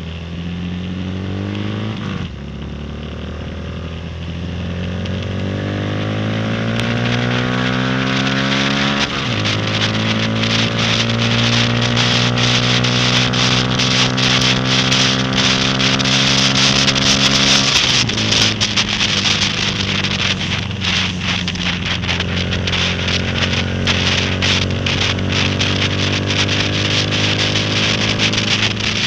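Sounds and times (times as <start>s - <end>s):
motorcycle engine revving: 0.0s - 29.0s
wind rushing: 5.7s - 29.0s
rain drops ticking on camera: 6.8s - 29.0s.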